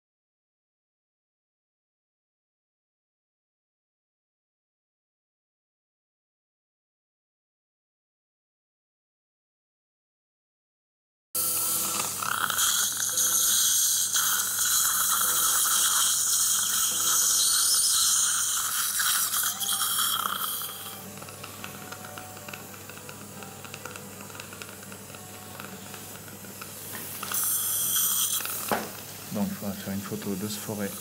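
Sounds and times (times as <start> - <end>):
surgical suction hiss: 11.4 - 31.0.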